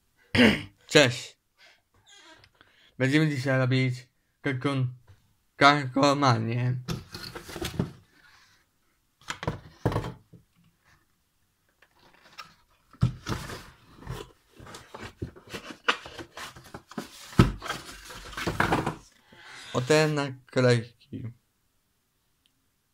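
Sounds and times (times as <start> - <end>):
knocks and thunks on table: 9.4 - 10.3, 18.4 - 19.0.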